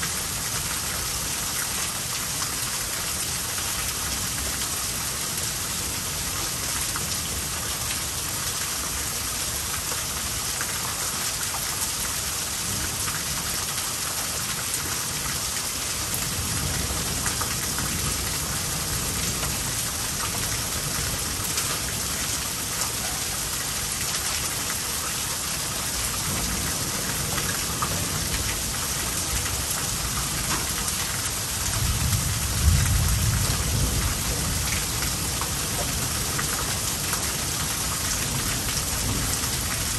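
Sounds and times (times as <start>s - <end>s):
heavy rain pouring: 0.0s - 39.9s
thunder rumbling: 31.8s - 36.3s.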